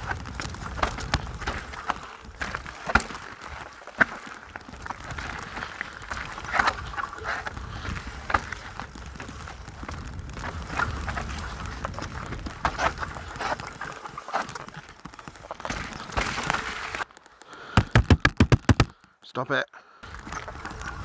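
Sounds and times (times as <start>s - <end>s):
bike rattling over rocks: 0.0s - 19.0s, 20.0s - 21.0s
wind rumble on microphone: 4.8s - 13.8s.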